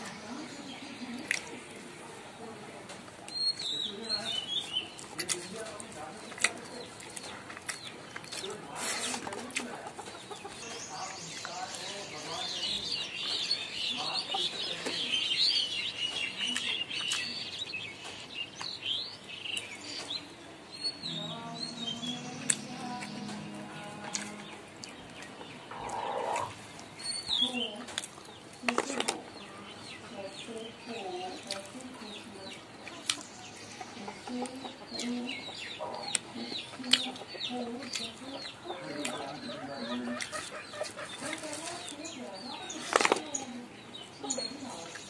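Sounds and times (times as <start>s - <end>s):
chickens clucking: 0.0s - 18.8s, 19.6s - 45.0s
birds chirping: 0.0s - 45.0s
high chirping calls: 10.2s - 28.4s
soft music: 21.0s - 25.2s
fowl clucking: 25.4s - 26.6s, 38.8s - 41.5s.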